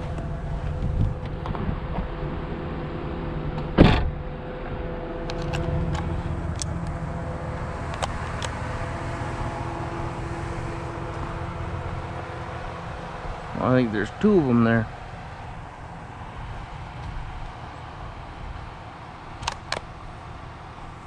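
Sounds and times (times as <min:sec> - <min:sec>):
pickup truck engine running: 0:00.0 - 0:21.0
tyres on gravel road: 0:00.0 - 0:21.0
sharp loud bang: 0:03.8 - 0:04.2
loose gravel ticks: 0:05.3 - 0:07.0, 0:07.9 - 0:08.8.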